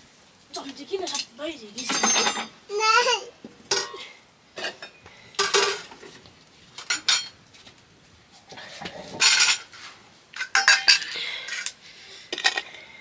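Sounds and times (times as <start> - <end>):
dishes and utensils clinking: 1.0 - 2.6, 3.7 - 6.2, 6.8 - 7.4, 9.1 - 9.8, 10.4 - 11.8.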